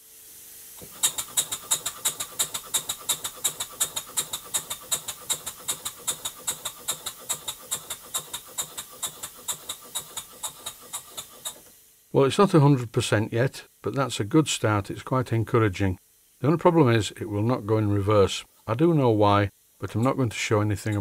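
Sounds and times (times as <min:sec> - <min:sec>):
steam engine exhaust puffing: 0:00.0 - 0:11.8, 0:19.8 - 0:21.0.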